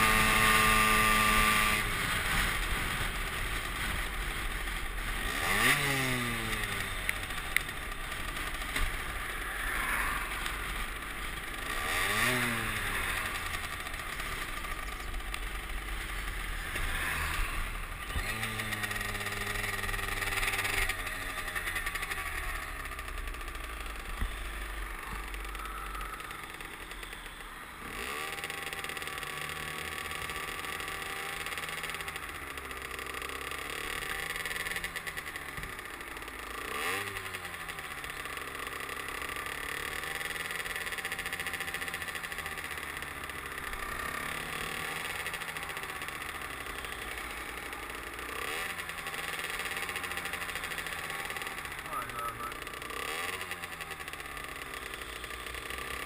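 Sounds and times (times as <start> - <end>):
road noise rushing: 0.0 - 29.3
moped engine revving: 0.0 - 56.0.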